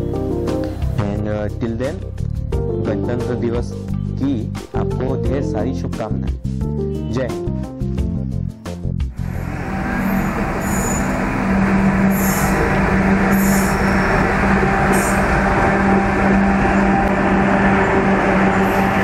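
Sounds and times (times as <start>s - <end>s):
locomotive low hum: 9.1s - 19.0s
high wheel squeals: 9.2s - 19.0s
train wheels rumbling on rails: 9.2s - 19.0s.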